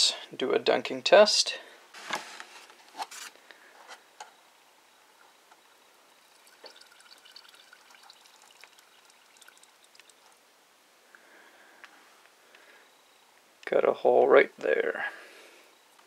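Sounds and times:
water sloshing and dripping: 0:06.1 - 0:10.4.

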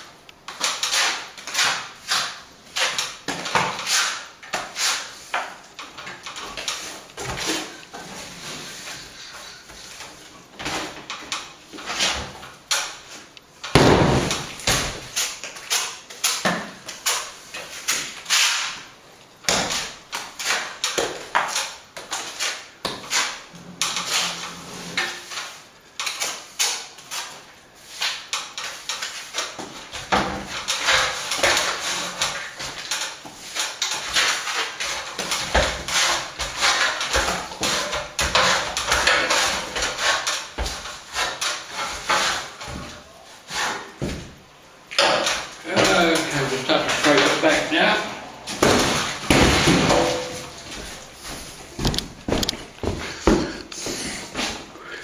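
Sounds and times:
trowel scraping plaster: 0:00.5 - 0:11.1, 0:11.7 - 0:13.3, 0:15.0 - 0:18.8, 0:19.5 - 0:44.1.

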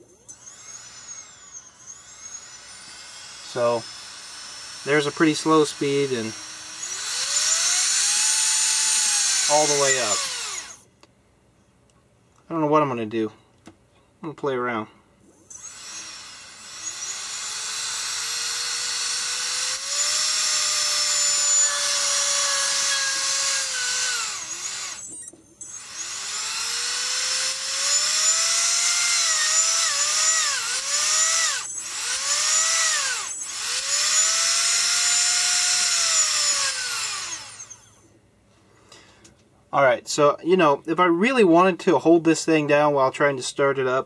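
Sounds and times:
electric motor whine revving: 0:00.0 - 0:10.8, 0:15.2 - 0:38.0.

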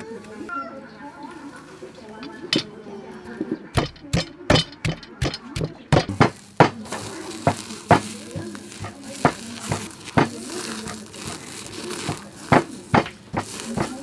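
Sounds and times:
wire grill rack knocking: 0:03.8 - 0:11.0, 0:12.1 - 0:14.0
searing skin crackling hiss: 0:06.2 - 0:14.0.

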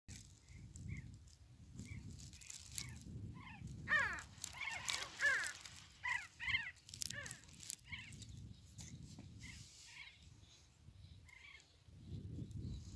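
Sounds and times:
harsh bird calls: 0:01.8 - 0:08.5.

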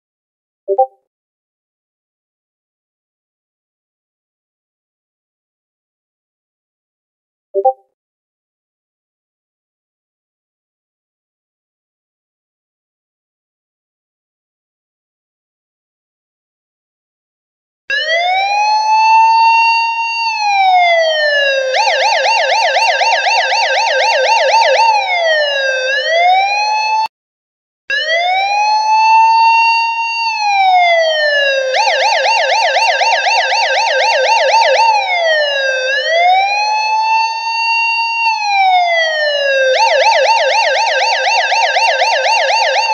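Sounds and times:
police car siren: 0:17.9 - 0:27.1, 0:27.9 - 0:42.9.

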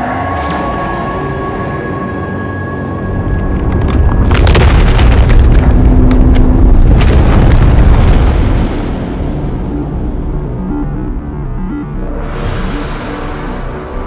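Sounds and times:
deep cinematic rumble: 0:02.8 - 0:14.0
crackling hits: 0:03.3 - 0:10.6
synth tones: 0:08.8 - 0:14.0.

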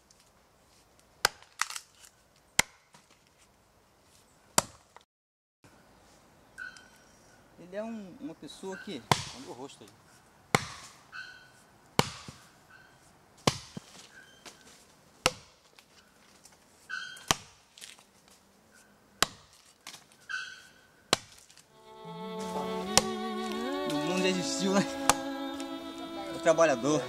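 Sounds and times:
axe chopping into tree trunk: 0:01.2 - 0:01.8, 0:02.6 - 0:03.1, 0:04.6 - 0:04.9, 0:09.1 - 0:09.5, 0:10.5 - 0:11.0, 0:12.0 - 0:12.4, 0:13.4 - 0:13.9, 0:15.2 - 0:15.7, 0:17.2 - 0:17.6, 0:19.2 - 0:20.0, 0:21.1 - 0:21.6
fiddle music: 0:21.7 - 0:27.0.

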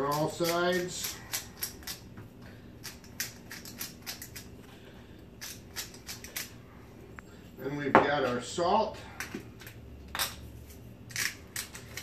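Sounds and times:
pepper mill grinding: 0:00.0 - 0:02.1, 0:02.8 - 0:04.5, 0:05.4 - 0:06.6, 0:09.6 - 0:12.0.

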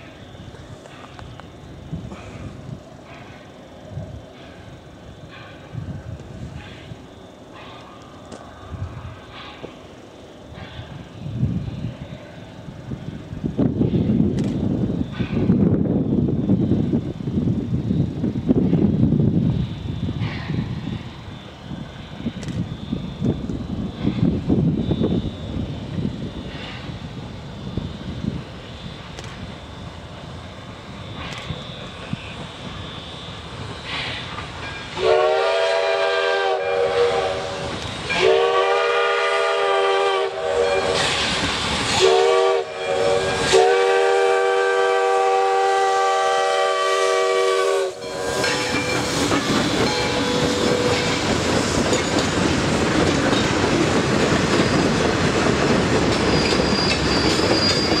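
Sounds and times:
train rumbling: 0:00.0 - 0:58.0
steam locomotive chime whistle: 0:31.0 - 0:51.3, 0:56.2 - 0:58.0.

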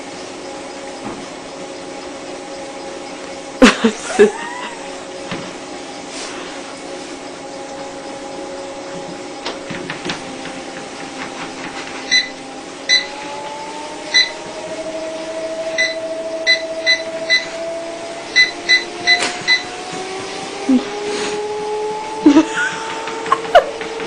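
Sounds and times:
treadmill motor whine: 0:00.0 - 0:24.0
short console beeps: 0:15.8 - 0:17.5.

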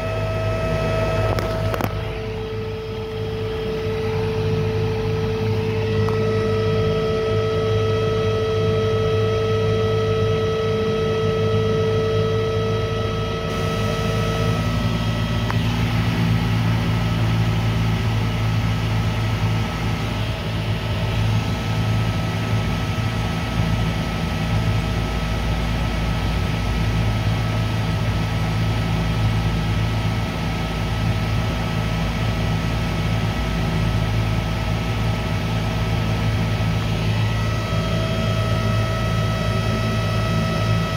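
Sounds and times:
high steady tone: 0:00.0 - 0:16.7
electric motor hum: 0:00.0 - 0:27.0, 0:34.4 - 0:40.9.

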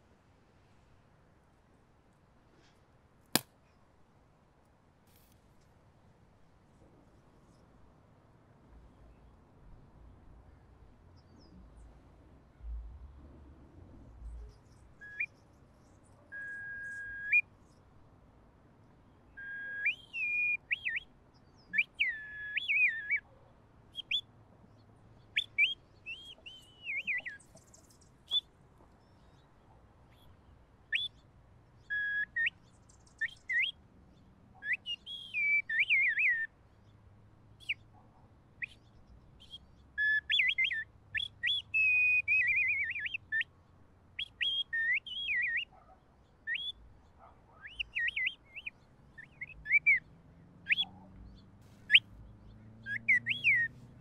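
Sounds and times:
handheld whistle warbling calls: 0:19.4 - 0:21.0, 0:39.4 - 0:43.4, 0:52.9 - 0:53.7.

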